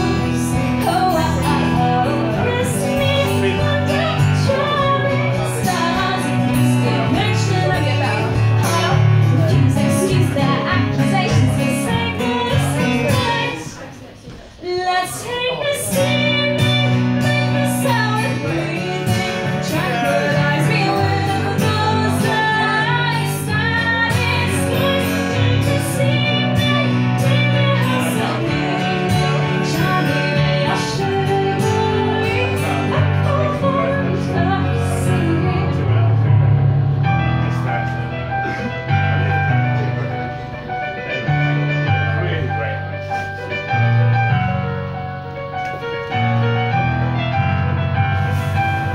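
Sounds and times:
strummed acoustic guitar: 0.0 - 14.0, 14.7 - 44.7, 45.5 - 48.9
woman singing: 0.0 - 36.1
keyboard sustained chords: 16.9 - 48.9.

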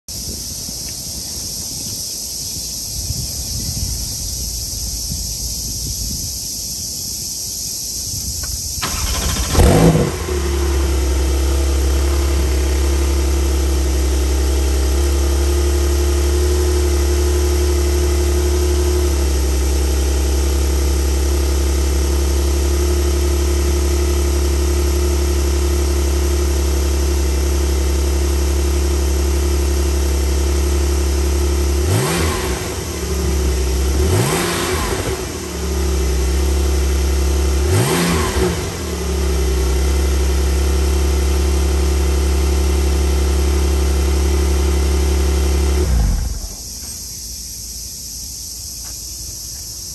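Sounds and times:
car engine starting and idling: 8.4 - 48.1
engine revving: 8.8 - 46.6.

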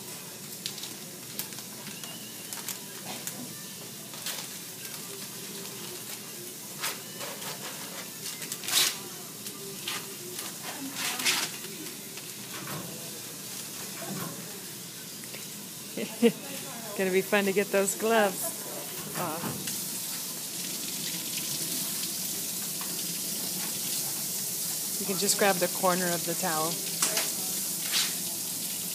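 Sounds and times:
crinkling of surgical wrap: 0.6 - 3.4.

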